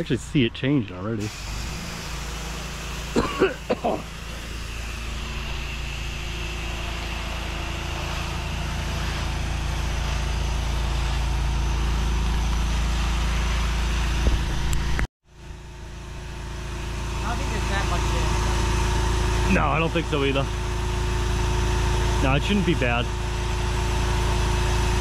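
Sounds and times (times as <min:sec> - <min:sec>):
pressure washer engine hum: 0:00.0 - 0:25.0
water spray hissing: 0:01.2 - 0:14.3.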